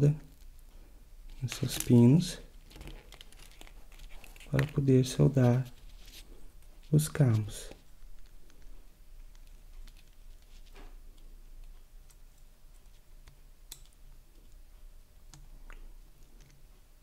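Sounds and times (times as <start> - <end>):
soldering clicks and crackles: 6.9 - 15.8.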